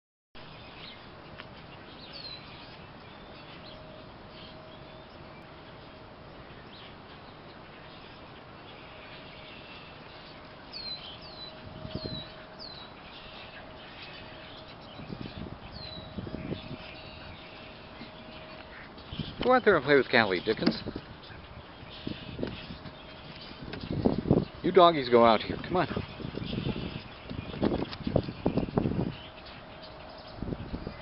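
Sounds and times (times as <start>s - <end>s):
faint steady hum: 0.4s - 31.0s
small bird chirping: 0.5s - 31.0s.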